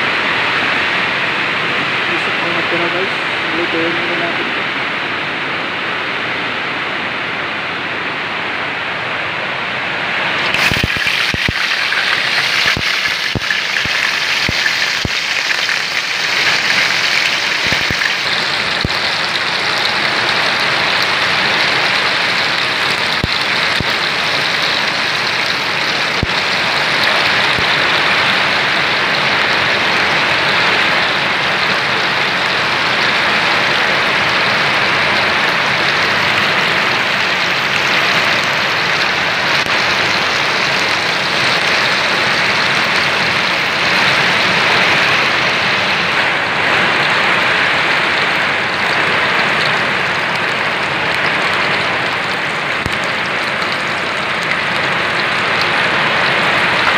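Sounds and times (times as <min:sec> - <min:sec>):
fish sizzling in hot oil: 0:10.4 - 0:29.0
oil popping: 0:10.4 - 0:29.6.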